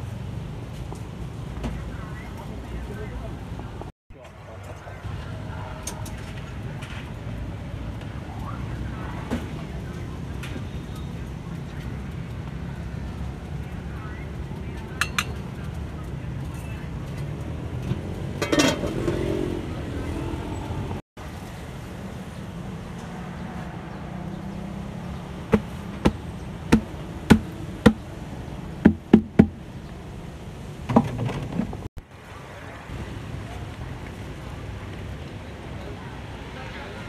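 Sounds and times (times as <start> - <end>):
low rumble of road traffic: 0.0 - 37.0
metal cookware clanking: 18.4 - 19.2
sharp knocks on metal pots: 25.5 - 28.0, 28.8 - 29.6.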